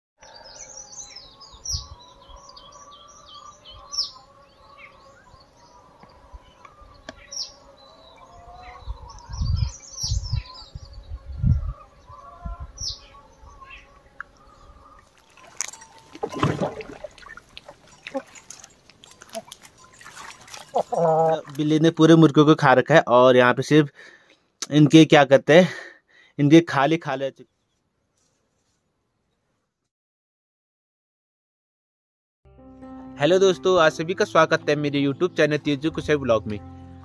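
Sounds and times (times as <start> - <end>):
small birds chirping: 0.2 - 21.8, 27.4 - 28.4.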